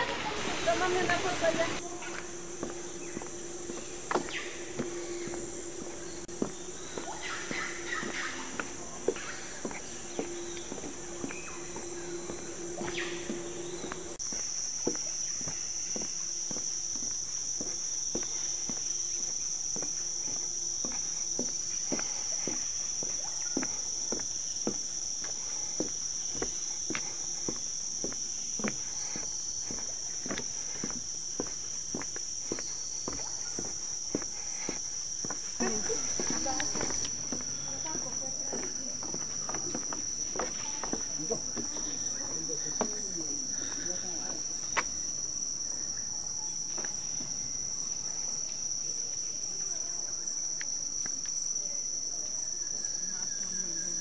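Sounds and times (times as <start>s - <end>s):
low hum: 0.0s - 42.5s
footsteps on wooden boardwalk: 0.0s - 49.3s
insects droning: 0.0s - 54.0s.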